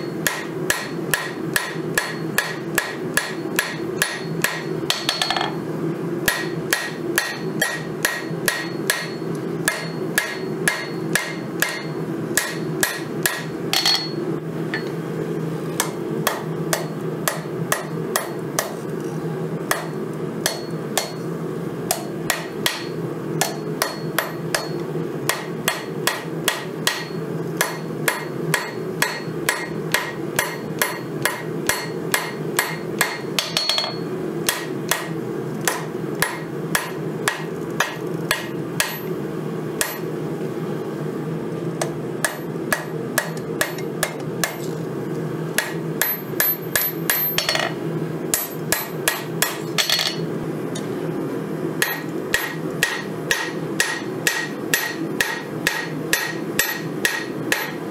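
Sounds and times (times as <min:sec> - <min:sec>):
hammer striking hot steel on anvil: 0:00.0 - 0:05.6, 0:06.2 - 0:15.0, 0:15.8 - 0:18.8, 0:19.7 - 0:21.3, 0:21.9 - 0:39.2, 0:39.8 - 0:40.2, 0:41.8 - 0:44.7, 0:45.5 - 0:50.9, 0:51.8 - 0:57.9.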